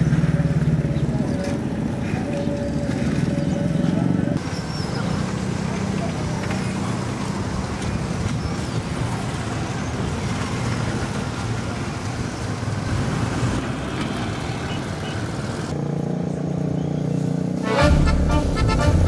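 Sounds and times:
motorcycle tricycles passing: 0:00.0 - 0:19.0
steady traffic hum: 0:00.0 - 0:19.0.

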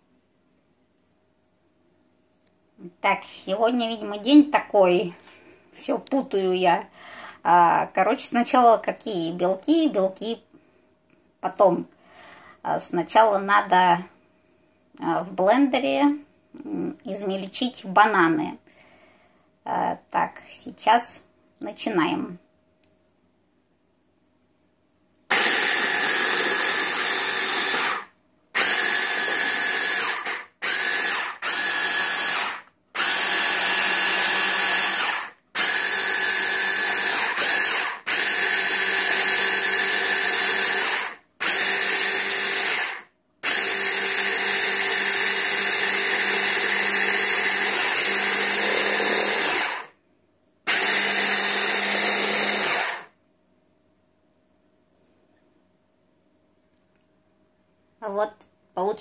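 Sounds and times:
hand blender motor pulsing: 0:25.3 - 0:49.9, 0:50.7 - 0:53.1.

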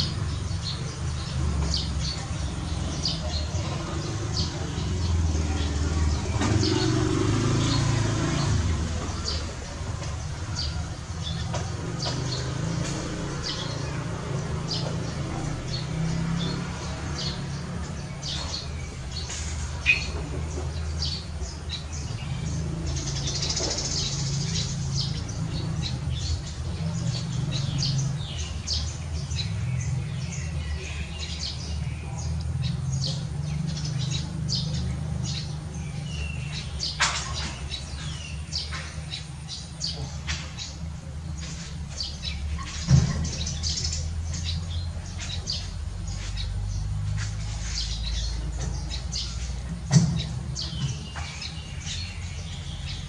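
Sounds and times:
small birds chirping: 0:00.0 - 0:53.0.

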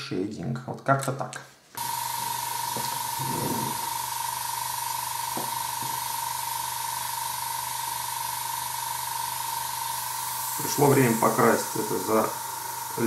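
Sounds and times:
electric motor whining: 0:01.8 - 0:13.0
constant hiss: 0:10.1 - 0:13.0.

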